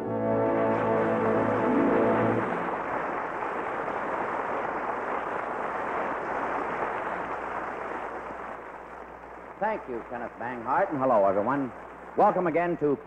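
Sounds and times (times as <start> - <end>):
audience applause: 0.2 - 13.0.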